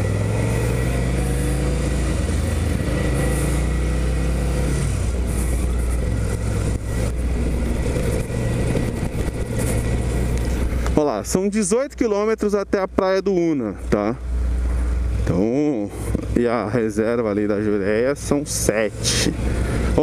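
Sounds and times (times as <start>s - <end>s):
motorcycle engine running: 0.0s - 11.2s.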